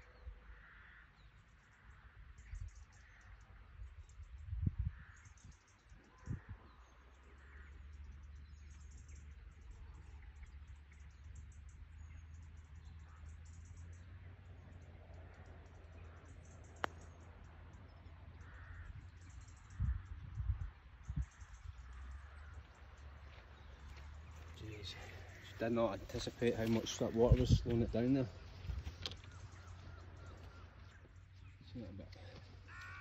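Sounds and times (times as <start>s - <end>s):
birds chirping: 0.0s - 33.0s
wind rumble on microphone: 3.6s - 6.9s, 18.5s - 22.5s, 27.1s - 30.3s.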